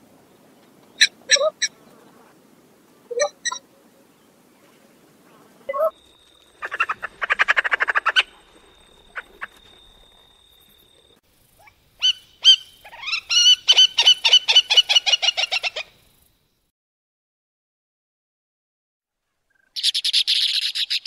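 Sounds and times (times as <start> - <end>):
courser calling: 0.8 - 2.3, 5.3 - 16.0.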